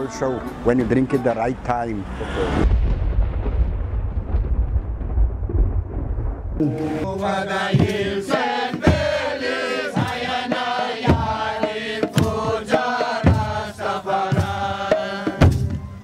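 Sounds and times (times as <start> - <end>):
heavy bass drum strokes: 6.5 - 16.0
hand drums: 6.6 - 16.0
voices chanting together: 6.6 - 16.0.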